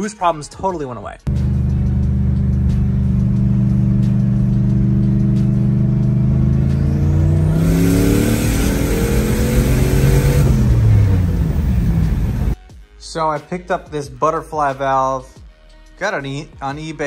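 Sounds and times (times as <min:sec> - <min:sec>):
car engine revving in cabin: 0:01.3 - 0:12.6
turbo and exhaust hissing: 0:01.3 - 0:12.6.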